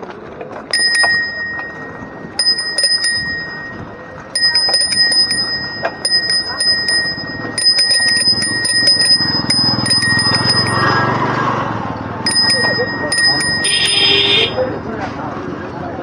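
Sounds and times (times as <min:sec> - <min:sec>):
bicycle bell ringing: 0:00.7 - 0:14.9.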